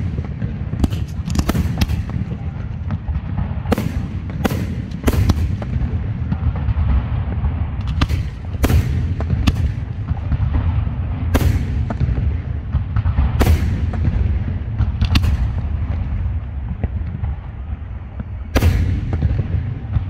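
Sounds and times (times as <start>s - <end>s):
firework shells bursting: 0.0s - 2.4s, 7.8s - 10.6s
small firework cracks: 0.0s - 6.8s, 7.8s - 10.6s
low rumble: 0.0s - 20.0s.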